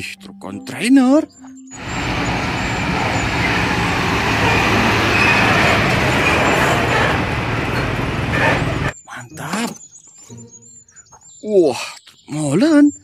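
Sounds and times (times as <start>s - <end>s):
traffic noise: 1.8s - 9.0s
truck diesel engine rumble: 1.8s - 9.0s.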